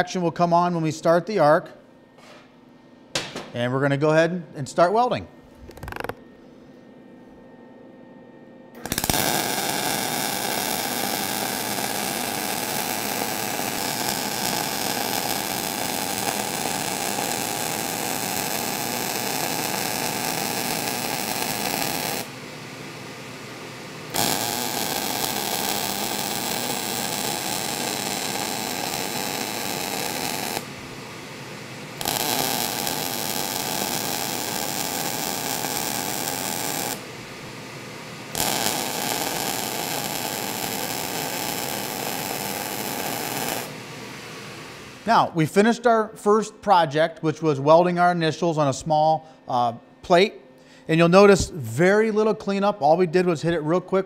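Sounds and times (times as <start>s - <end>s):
fume extractor noise: 5.5s - 6.2s, 8.7s - 45.5s
welding arc: 5.7s - 6.2s, 8.8s - 22.4s, 24.1s - 31.0s, 32.0s - 37.3s, 38.2s - 45.3s.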